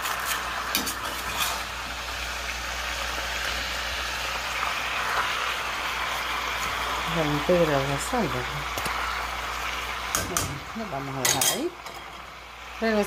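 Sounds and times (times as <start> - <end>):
pork skins sizzling in lard: 0.0 - 13.0
metal spoon clinking on pot: 11.2 - 12.1.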